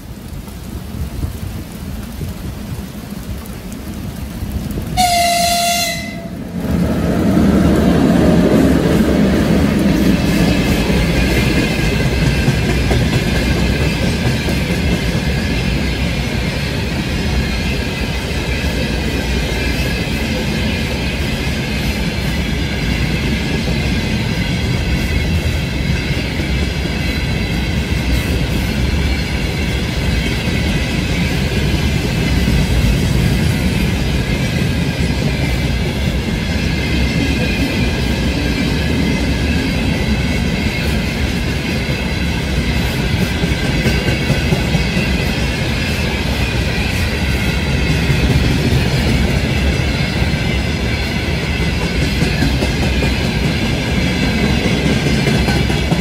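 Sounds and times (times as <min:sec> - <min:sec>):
freight train rumbling: 0:00.0 - 0:56.0
locomotive horn blast: 0:05.0 - 0:06.4
wagons clickety-clack: 0:07.5 - 0:56.0.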